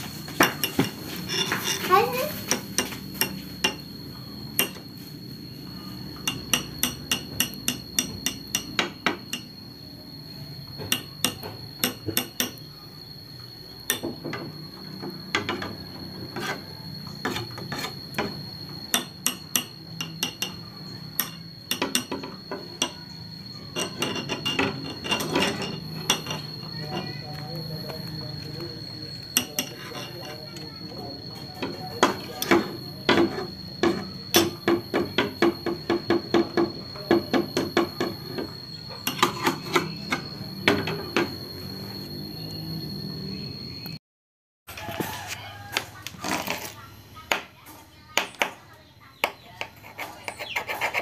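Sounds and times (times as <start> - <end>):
metal tools clicking and clinking: 23.7 - 27.2.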